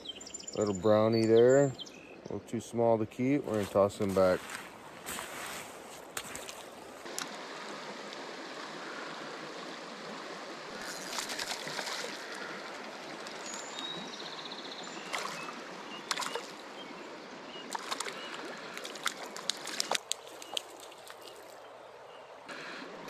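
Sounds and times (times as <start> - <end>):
stream water rushing over riffle: 5.1 - 21.7.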